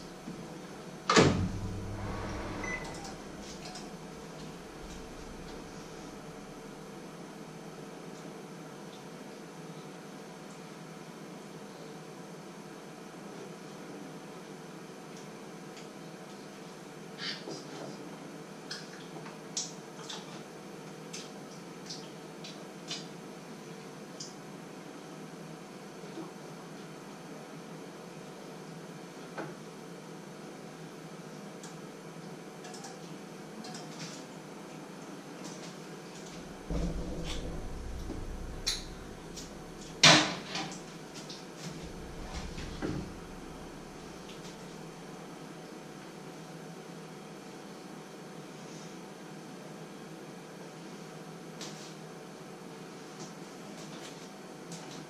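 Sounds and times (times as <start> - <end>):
steady low hum: 0.0 - 7.4, 36.2 - 45.3
dull thump: 36.5 - 40.0, 41.8 - 44.1.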